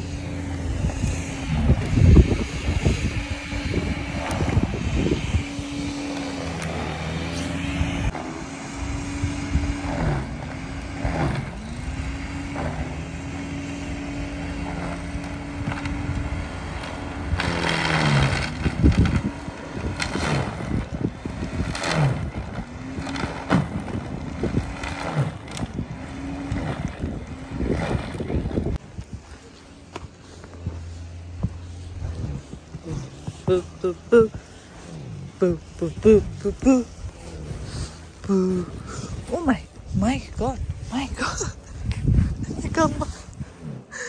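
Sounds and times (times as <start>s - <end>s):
snow being churned and thrown: 0.0s - 40.3s
snow thrower motor whine: 0.0s - 44.0s.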